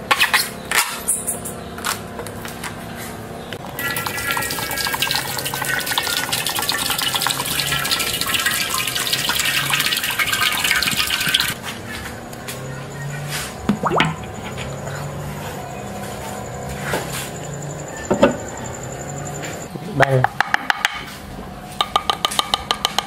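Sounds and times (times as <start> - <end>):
liquid pouring into metal wok: 3.8 - 11.6.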